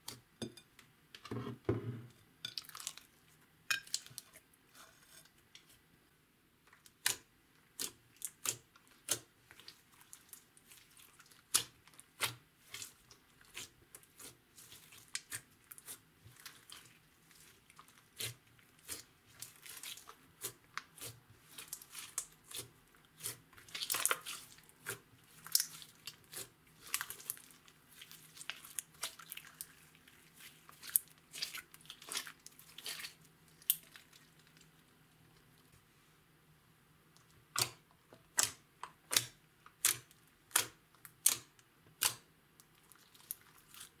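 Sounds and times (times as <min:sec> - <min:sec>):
slime crackling and popping: 0:07.8 - 0:34.1.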